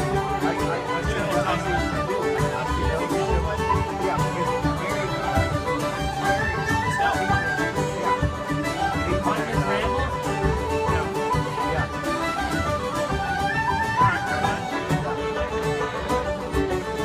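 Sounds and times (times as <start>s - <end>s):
fiddles playing melody: 0.0s - 17.0s
frame drum beat: 0.0s - 17.0s
plucked strings: 0.0s - 17.0s
wooden flute: 0.0s - 17.0s.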